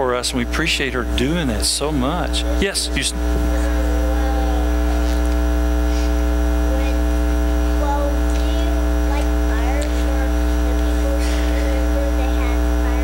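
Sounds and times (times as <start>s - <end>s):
electrical mains hum: 0.0s - 13.0s
faint voice: 2.3s - 7.1s, 7.7s - 13.0s.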